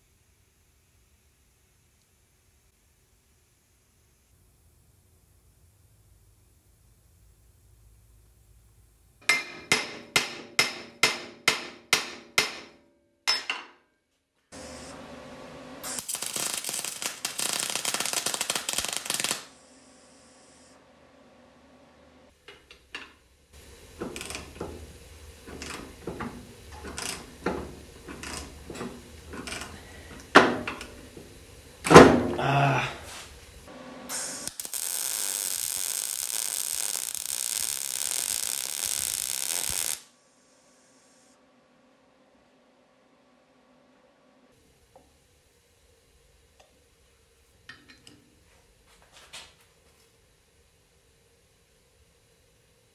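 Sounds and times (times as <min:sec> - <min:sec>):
metal clanks and knocks: 0:09.2 - 0:12.7, 0:25.4 - 0:31.3
hammer striking steel punch: 0:09.2 - 0:13.8
welder crackling: 0:14.5 - 0:20.8, 0:22.3 - 0:41.4.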